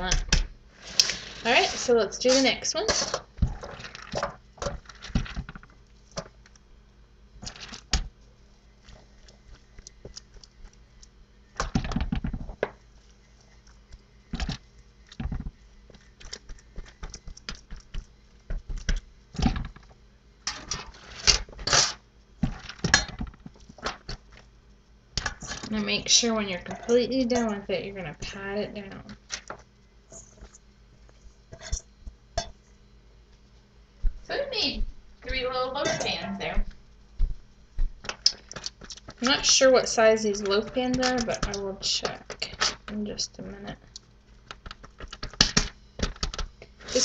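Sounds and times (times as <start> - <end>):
aluminium foil pan crinkling: 18.7 - 24.4, 29.1 - 30.6, 38.0 - 43.0, 43.8 - 47.0.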